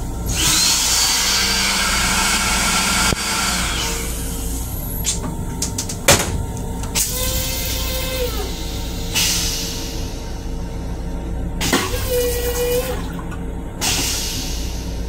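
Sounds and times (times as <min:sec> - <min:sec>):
low rumble: 0:03.7 - 0:11.6
water rushing into toilet bowl: 0:11.8 - 0:14.0.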